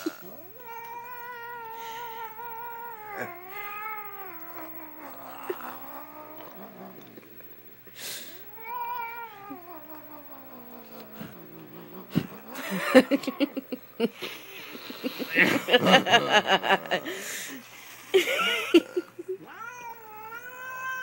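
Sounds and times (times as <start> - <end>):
cat yowling: 19.4 - 21.0.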